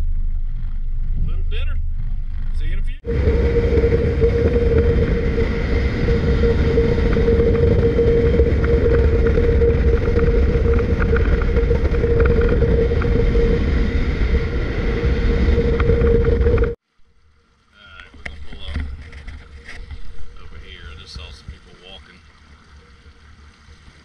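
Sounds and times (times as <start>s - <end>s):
outboard motor running: 0.0s - 16.8s
boat hull moving through water: 0.0s - 24.0s.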